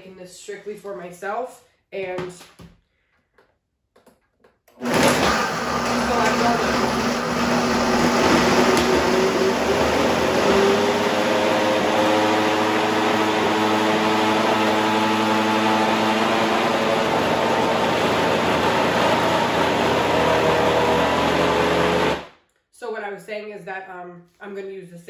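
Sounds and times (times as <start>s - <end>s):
blender motor blending ice: 4.7s - 22.3s.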